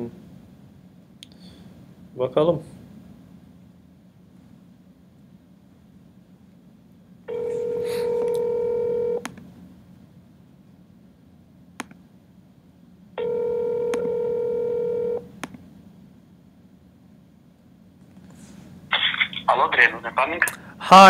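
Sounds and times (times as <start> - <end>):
telephone ringback tone: 7.3 - 9.2, 13.2 - 15.3.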